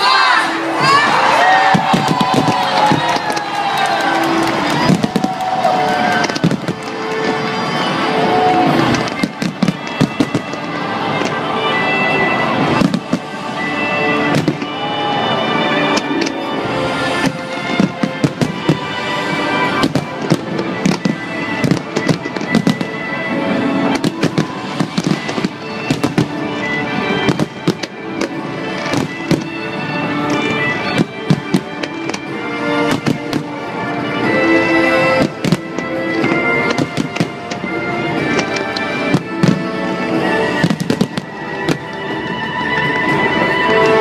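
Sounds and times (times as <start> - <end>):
music playing: 0.0 - 44.0
fireworks bursting: 0.8 - 44.0.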